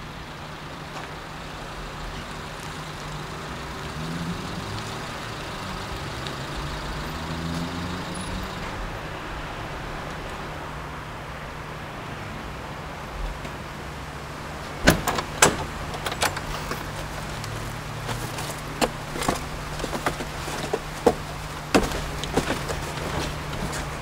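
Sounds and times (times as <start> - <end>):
boxes knocking and scraping: 14.7 - 24.0.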